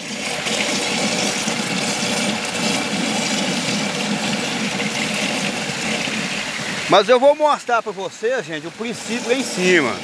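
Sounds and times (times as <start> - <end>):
running water rushing: 0.0 - 10.0.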